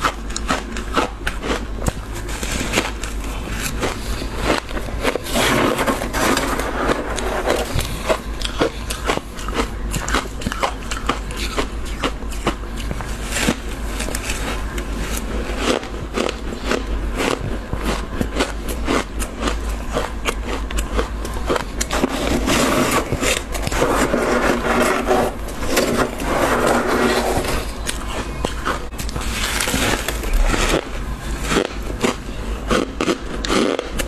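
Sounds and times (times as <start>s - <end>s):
crunching frost in mouth: 0.0s - 34.0s
spoon scraping frost: 2.1s - 9.6s, 21.4s - 32.4s.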